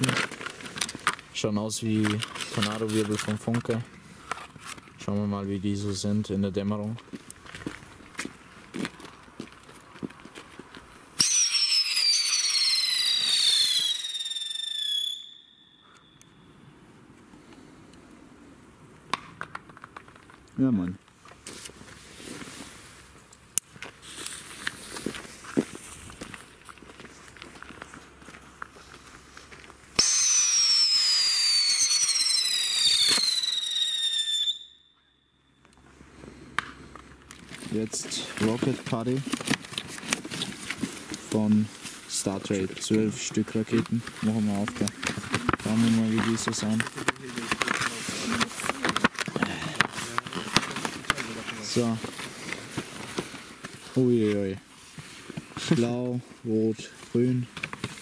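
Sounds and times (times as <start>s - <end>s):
firework crack: 0.0s - 4.9s, 11.0s - 16.6s, 23.5s - 26.8s, 27.6s - 35.0s, 36.4s - 54.1s
firework ignition rush: 11.2s - 15.4s, 30.0s - 34.6s
firework piercing whistle: 11.2s - 16.7s, 30.0s - 35.7s.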